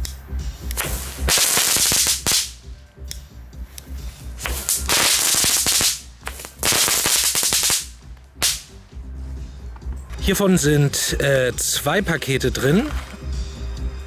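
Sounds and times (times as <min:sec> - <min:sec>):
firework rapid crackling: 0:00.8 - 0:02.6, 0:04.4 - 0:08.7.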